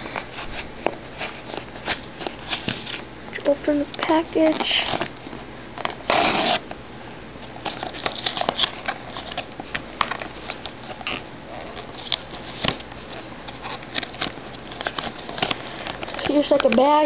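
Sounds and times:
cardboard scraping and crinkling: 0.0 - 6.6, 7.5 - 17.0
cardboard ripping: 5.8 - 6.7, 7.6 - 17.0.

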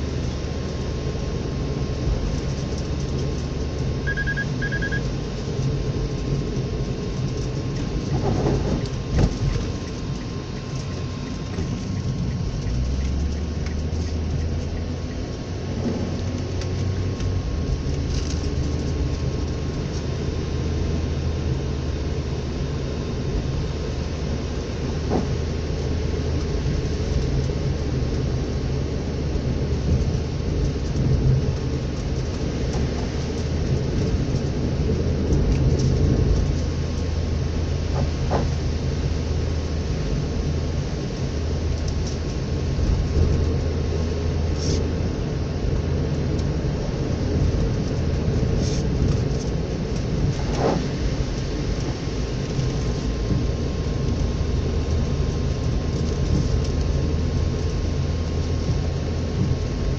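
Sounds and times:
tyre noise on wet road: 0.0 - 59.9
vehicle engine hum: 0.0 - 59.9
short electronic beeps: 4.0 - 5.1.

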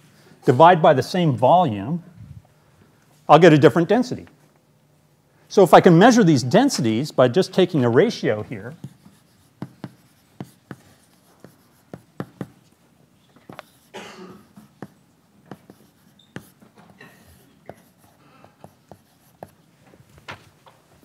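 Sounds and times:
chalk tapping and scratching: 8.3 - 12.8, 13.4 - 19.7.

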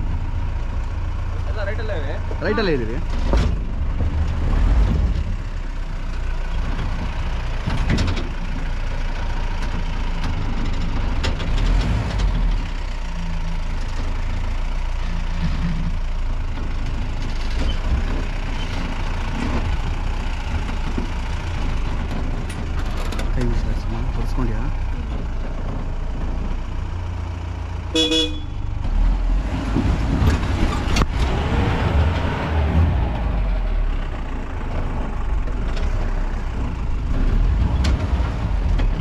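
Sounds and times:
jeep engine running: 0.0 - 39.0
knocks and rattles: 2.6 - 5.4, 6.5 - 12.7, 15.4 - 26.7, 34.1 - 39.0.

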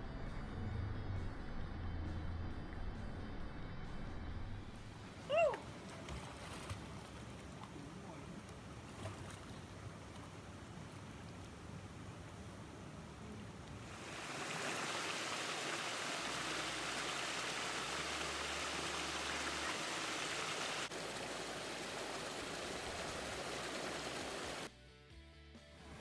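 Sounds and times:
stream water rushing over boulders: 5.1 - 24.7.

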